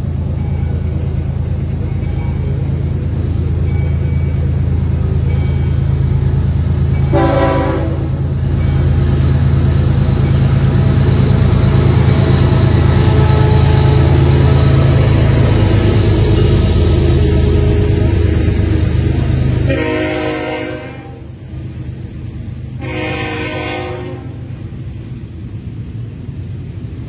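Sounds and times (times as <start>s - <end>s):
diesel locomotive engine drone: 0.0s - 27.0s
train wheels rumbling on rails: 0.0s - 27.0s
train horn blast: 7.0s - 8.3s, 13.0s - 14.4s, 19.6s - 21.3s, 22.8s - 24.5s.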